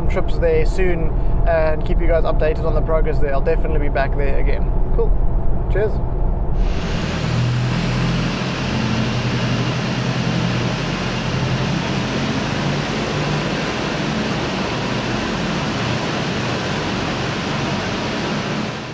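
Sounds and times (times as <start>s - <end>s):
car engine hum: 5.2s - 18.9s
rushing road noise: 6.6s - 18.9s.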